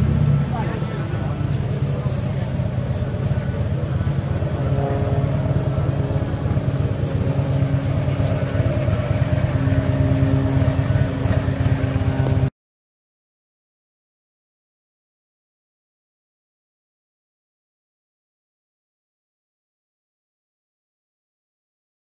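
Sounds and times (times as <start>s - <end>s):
motorcycle engine idling: 0.0s - 12.5s.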